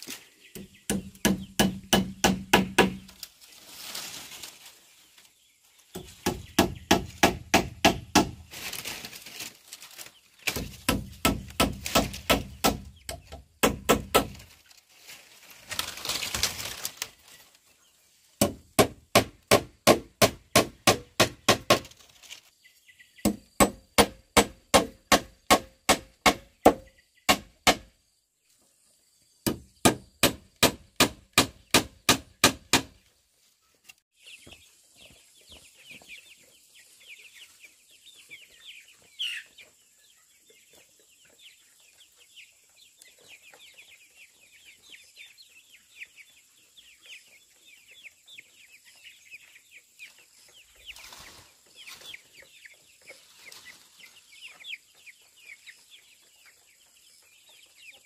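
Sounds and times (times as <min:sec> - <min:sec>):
chicks peeping: 0:00.0 - 0:30.6, 0:31.2 - 0:58.0.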